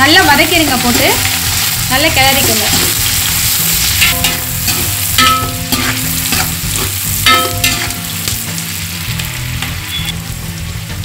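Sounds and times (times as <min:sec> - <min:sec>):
onions sizzling in oil: 0:00.0 - 0:11.0
pot ringing: 0:04.0 - 0:08.8.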